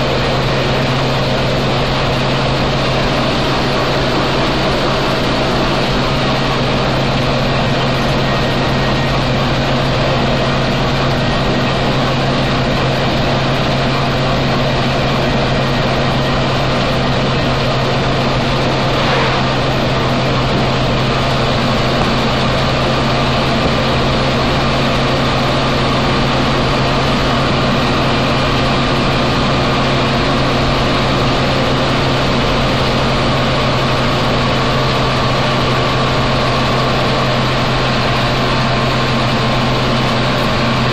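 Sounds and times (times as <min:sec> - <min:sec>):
truck engine running: 0:00.0 - 0:40.9
faint high whine: 0:18.5 - 0:23.8.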